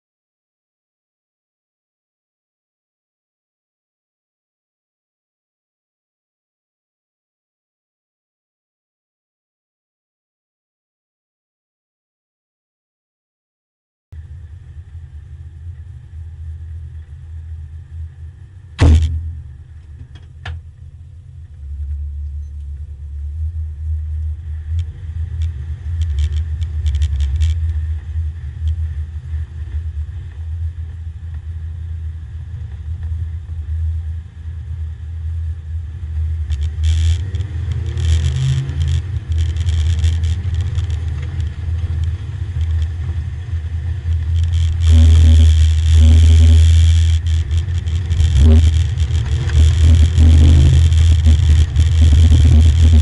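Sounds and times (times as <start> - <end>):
car engine rumbling: 14.2 - 53.0
loud thump: 18.8 - 20.6
rattles: 36.5 - 43.4, 44.0 - 53.0.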